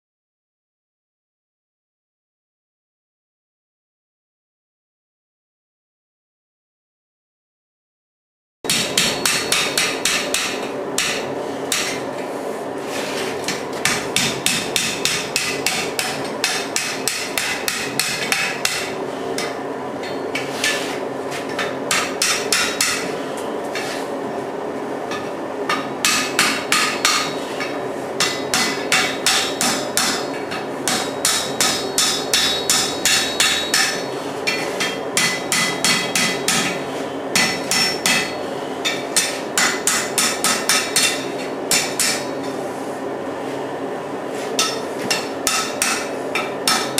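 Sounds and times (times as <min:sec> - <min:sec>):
hammer striking iron on anvil: 0:08.7 - 0:12.1, 0:13.5 - 0:20.8, 0:21.5 - 0:23.1, 0:25.1 - 0:42.4, 0:44.6 - 0:46.9
steady background noise: 0:08.7 - 0:46.9.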